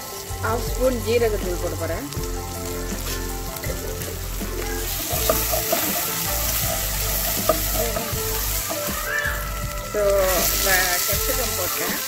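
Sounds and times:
paste sizzling in hot oil: 0.0 - 12.0
spoon knocking against pan: 4.5 - 9.4.

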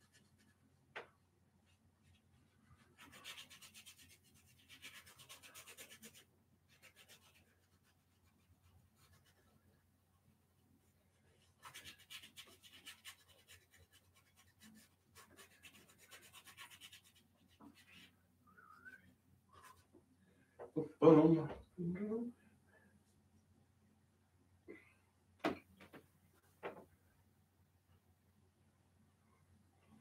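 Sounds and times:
paintbrush scrubbing on canvas: 1.7 - 9.8, 11.4 - 18.2.

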